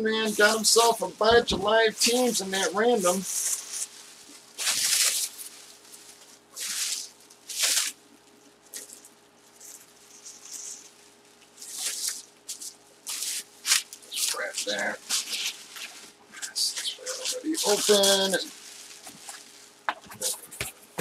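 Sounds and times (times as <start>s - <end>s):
plastic and bubble wrap crinkling: 0.0s - 21.0s.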